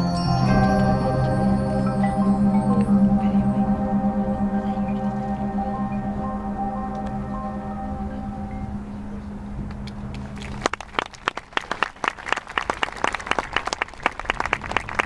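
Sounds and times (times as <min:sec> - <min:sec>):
mallet percussion ringing: 0:00.0 - 0:09.7
audience applause: 0:10.4 - 0:15.0.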